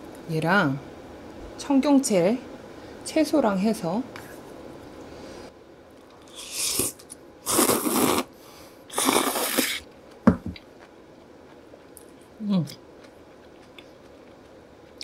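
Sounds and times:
noodles slurped loudly: 6.4s - 8.3s, 8.9s - 9.8s.

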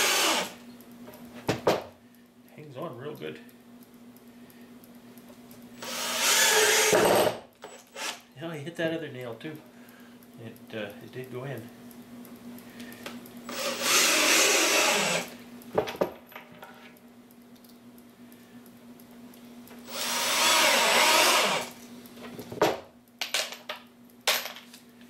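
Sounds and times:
cordless drill driving screws: 0.0s - 0.6s, 5.8s - 8.2s, 13.5s - 15.4s, 19.8s - 21.8s.

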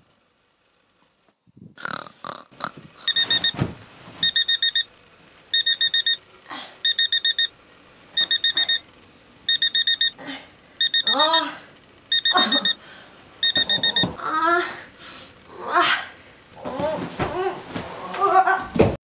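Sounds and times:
electronic alarm beeping: 3.0s - 3.6s, 4.2s - 4.9s, 5.5s - 6.2s, 6.8s - 7.6s, 8.2s - 8.9s, 9.5s - 10.2s, 10.8s - 11.5s, 12.1s - 12.8s, 13.4s - 14.2s
bedclothes rustling: 3.0s - 4.6s, 16.6s - 18.2s
woman groaning: 6.4s - 6.8s, 10.2s - 12.8s, 14.0s - 14.9s, 15.5s - 18.8s.

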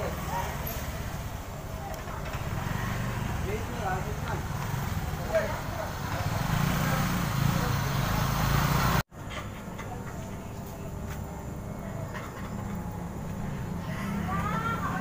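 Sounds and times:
engine running: 0.0s - 9.1s.

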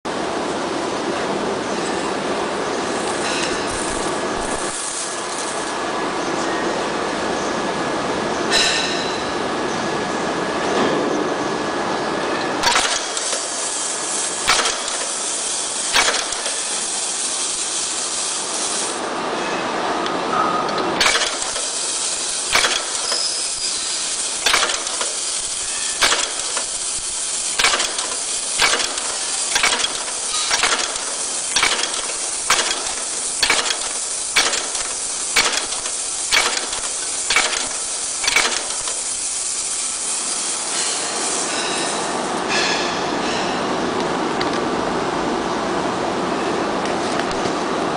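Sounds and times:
rivet machine metallic clacks: 12.6s - 19.0s, 20.8s - 42.0s
constant hiss: 12.7s - 19.2s, 21.0s - 42.4s.

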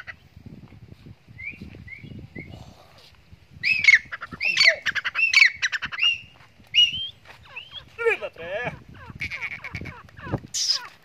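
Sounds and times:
faint bird chirps: 1.3s - 3.0s, 3.6s - 8.0s
francolin calling: 3.6s - 11.0s.

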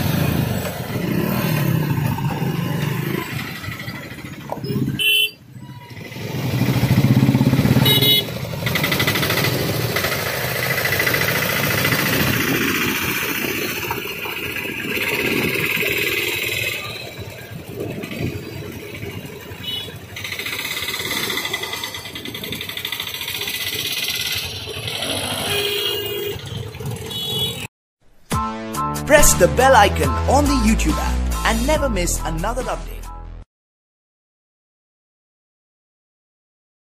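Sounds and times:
small engines accelerating: 0.0s - 4.9s, 5.9s - 27.6s
horn beeps: 4.6s - 6.0s, 7.8s - 8.3s, 25.3s - 27.7s.

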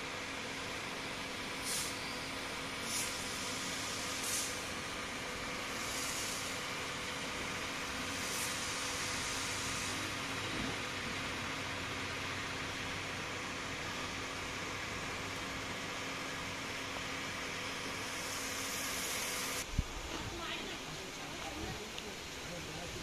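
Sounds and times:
high-pressure water jet hissing: 0.6s - 19.7s
short sharp hisses: 1.6s - 2.1s, 2.8s - 4.7s, 5.8s - 6.6s, 8.2s - 10.1s
power sprayer engine running: 1.7s - 19.6s.

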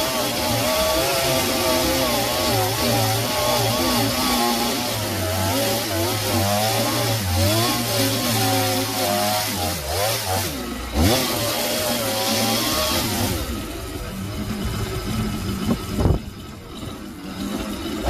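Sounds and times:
chainsaw cutting into log: 0.0s - 14.1s.

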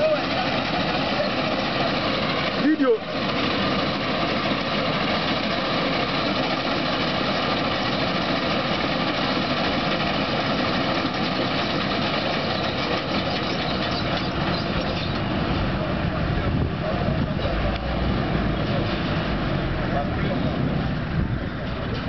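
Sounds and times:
combine harvester droning: 0.0s - 22.0s.

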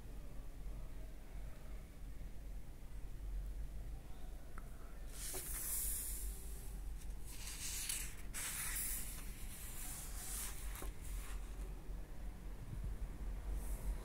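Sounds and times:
low steady hum: 0.0s - 14.0s
book pages rustling: 5.2s - 6.0s, 7.0s - 11.7s.

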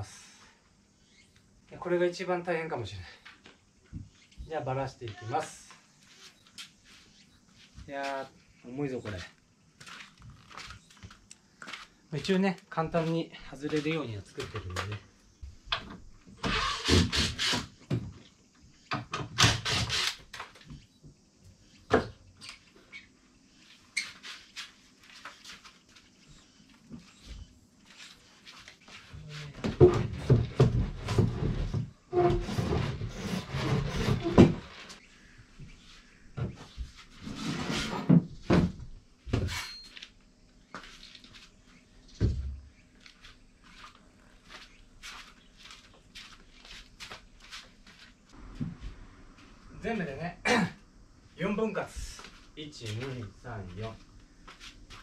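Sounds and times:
wooden panels knocking and scraping: 29.6s - 35.0s.

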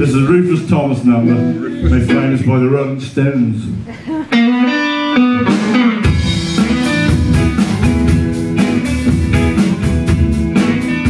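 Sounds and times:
bass guitar: 0.0s - 2.8s, 3.6s - 11.0s
electric guitar riff: 1.2s - 2.7s, 4.3s - 11.0s
drum kit beat: 4.3s - 11.0s.

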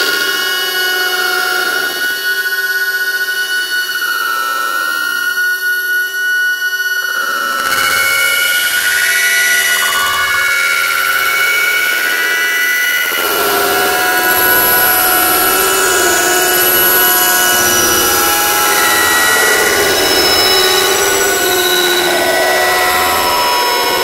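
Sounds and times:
dense drone of high tones: 7.5s - 24.0s.

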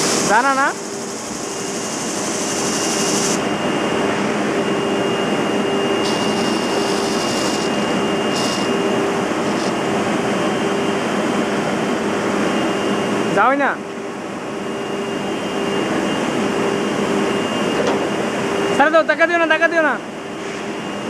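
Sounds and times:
drum sanding machine running: 0.0s - 3.5s, 6.0s - 10.2s.

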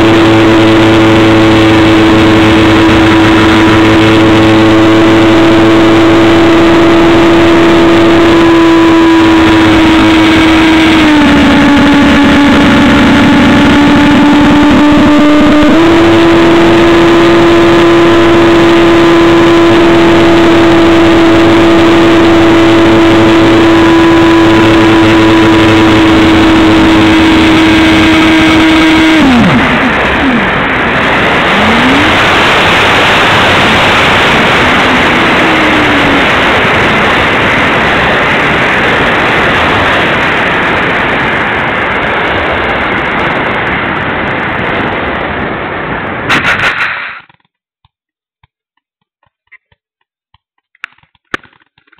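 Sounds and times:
electric motor propeller whine: 0.0s - 45.9s
rush of air: 29.2s - 47.4s.

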